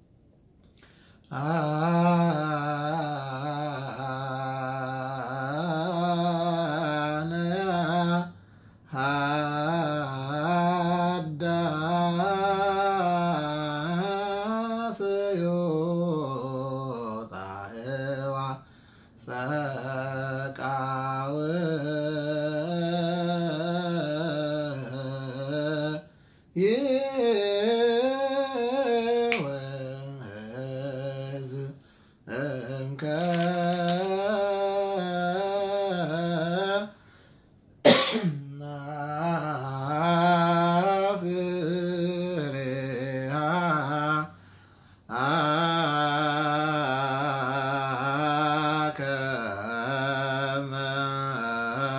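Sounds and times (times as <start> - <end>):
man chanting solo: 1.3 - 37.0, 38.3 - 44.4, 45.1 - 51.9.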